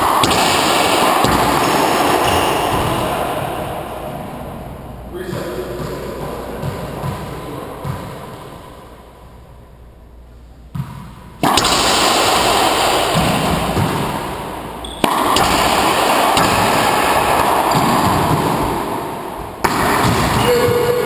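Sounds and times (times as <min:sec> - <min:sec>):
loud steady rushing noise: 0:00.0 - 0:09.0, 0:11.4 - 0:20.5
ball striking racquets and walls: 0:00.0 - 0:09.5, 0:10.7 - 0:21.0
sharp knock: 0:14.9 - 0:18.7.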